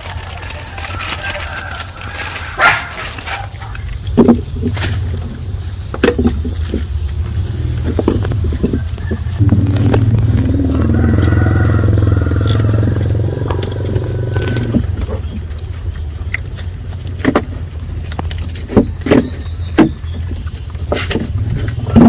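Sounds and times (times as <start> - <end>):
low engine hum: 0.0 - 22.0.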